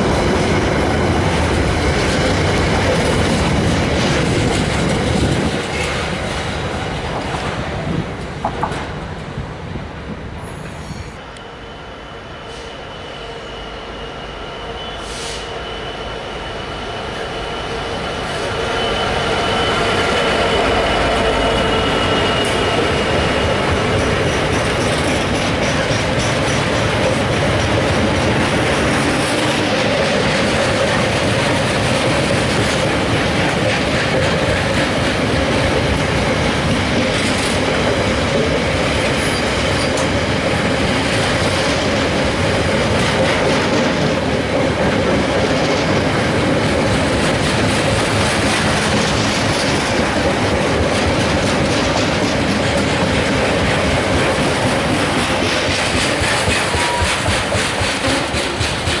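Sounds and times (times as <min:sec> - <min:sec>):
train wheels running over rails: 0:00.0 - 0:11.2, 0:15.0 - 0:59.0.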